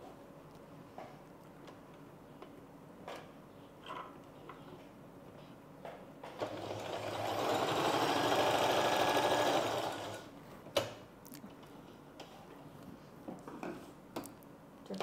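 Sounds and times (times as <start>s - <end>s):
sewing machine stitching: 6.3s - 10.3s.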